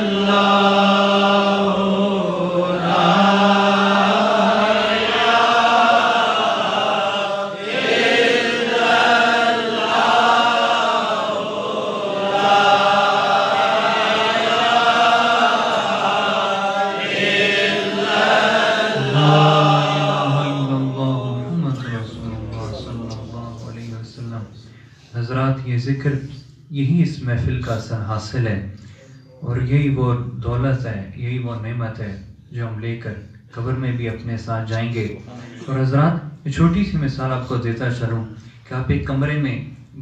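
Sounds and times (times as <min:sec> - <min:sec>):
men chanting together: 0:00.0 - 0:23.9.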